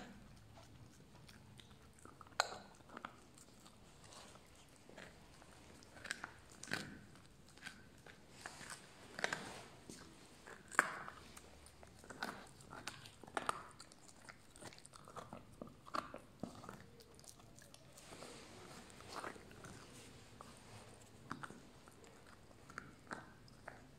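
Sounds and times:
teeth cracking on bone: 0.0s - 3.8s, 4.9s - 8.2s, 10.5s - 17.9s
puppy gnawing on a bone: 0.0s - 23.9s.

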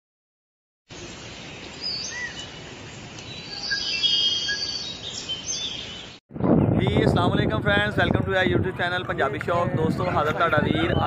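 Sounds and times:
birds chirping and whistling: 0.9s - 6.2s
birds trilling: 0.9s - 6.2s.

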